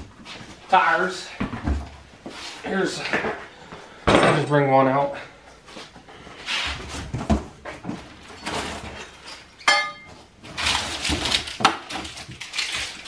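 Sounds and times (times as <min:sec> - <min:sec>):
packaging rustling: 0:10.4 - 0:13.0.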